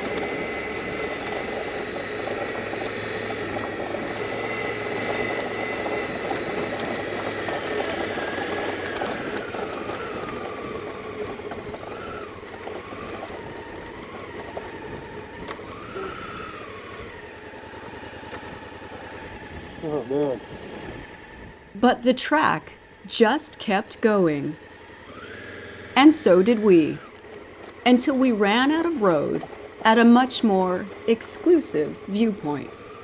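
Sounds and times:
wind noise: 0.0 - 17.3, 18.3 - 21.8
motorcycle engine: 0.0 - 33.0
whining tone: 0.0 - 33.0.

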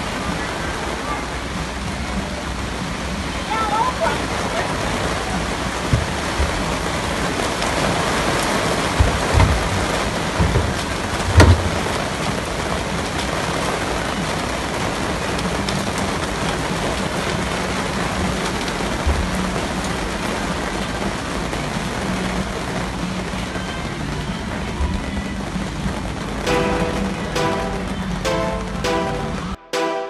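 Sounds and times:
heavy rain hiss: 0.0 - 29.6
dull thumps: 9.0 - 12.0.

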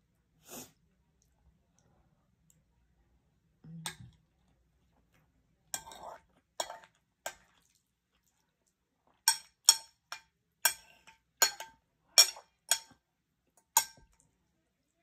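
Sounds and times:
cutlery clinking against dish: 9.3 - 13.0, 13.8 - 14.1.

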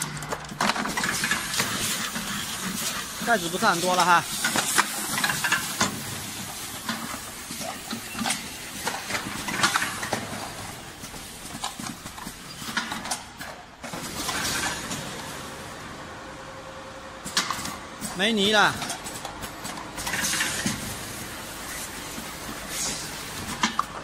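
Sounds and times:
machine mechanism clacking: 0.0 - 6.0, 17.3 - 20.8
steady machine hiss: 1.1 - 8.9, 20.4 - 23.5.

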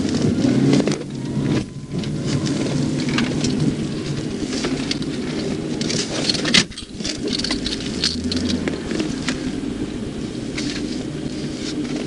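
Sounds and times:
small clicks and rattles: 0.0 - 9.5
car engine and road noise: 0.0 - 12.0.

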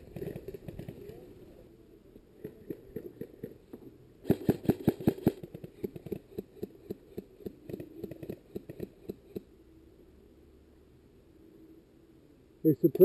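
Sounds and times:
airsoft rifle shots: 4.2 - 5.4.

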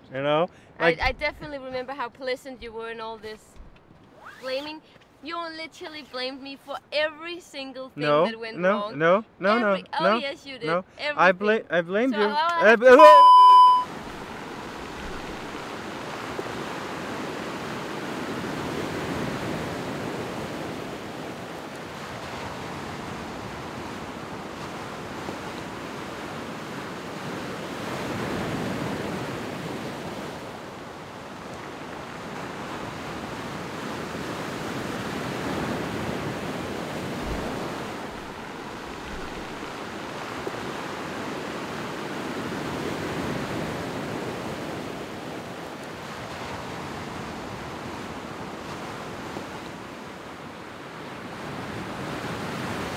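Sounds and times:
waves washing over stony beach: 14.2 - 52.9.

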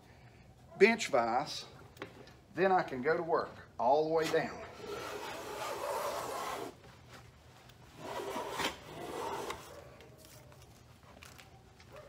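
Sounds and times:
hand plane shaving wood: 4.8 - 6.8, 8.0 - 9.7.

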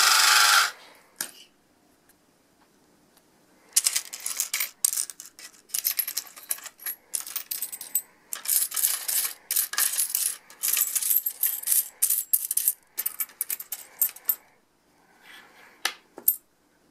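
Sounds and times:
coins clinking and jingling: 3.8 - 14.4.

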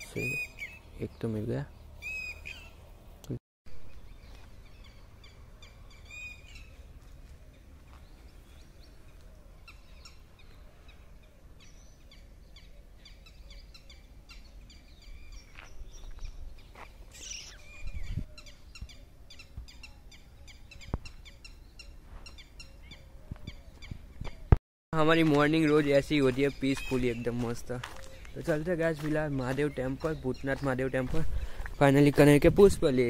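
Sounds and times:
small birds chirping: 0.0 - 24.6, 25.2 - 33.0
sweeping bird call: 2.0 - 2.8, 4.1 - 24.5.

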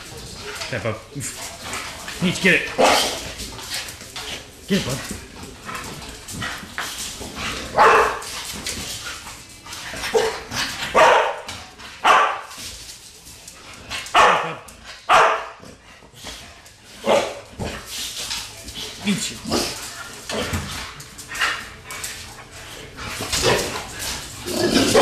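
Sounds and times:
dog barking: 7.8 - 8.2, 10.1 - 12.5, 14.1 - 15.6, 17.0 - 17.4.

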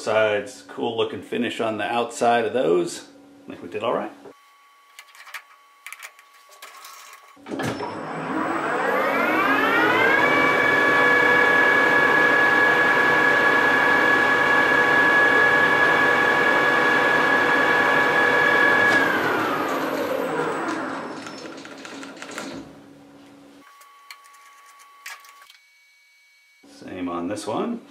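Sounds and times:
metal lathe spindle whine: 7.8 - 21.6.

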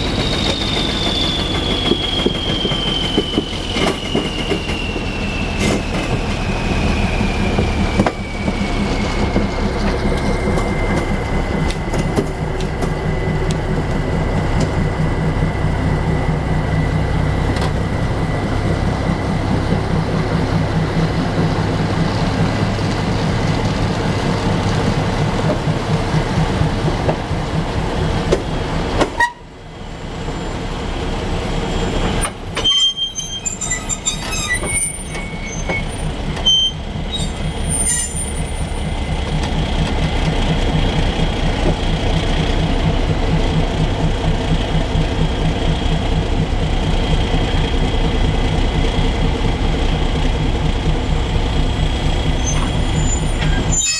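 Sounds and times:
metal wheel squeals: 0.0 - 11.2, 31.7 - 38.8, 52.3 - 53.9
locomotive engine throbbing: 0.0 - 53.9.

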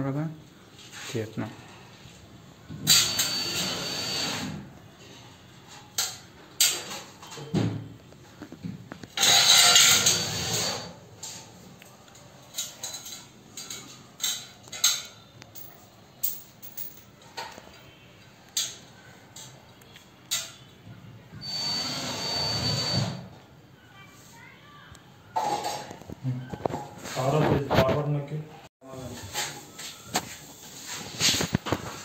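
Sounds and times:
power drill running: 2.9 - 4.5, 21.4 - 23.2.

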